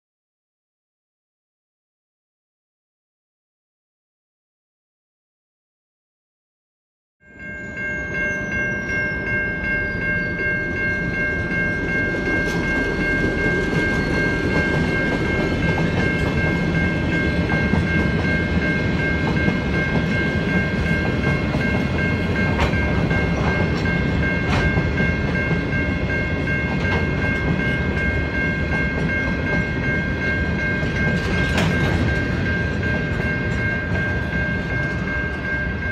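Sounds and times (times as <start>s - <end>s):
steady high-pitched tone: 7.2s - 35.9s
train wheels rumbling on rail: 8.6s - 35.9s
clicks and clunks of wagons: 30.8s - 32.4s.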